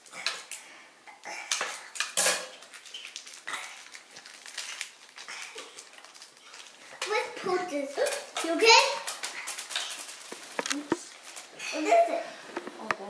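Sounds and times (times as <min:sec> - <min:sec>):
plastic objects clicking and clattering: 0:08.0 - 0:11.1.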